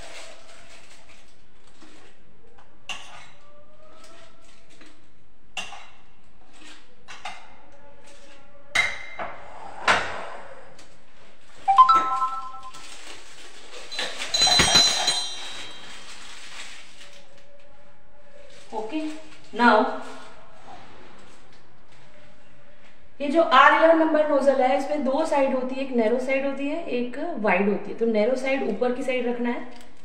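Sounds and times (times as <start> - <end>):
utensils clattering: 11.7 - 16.9.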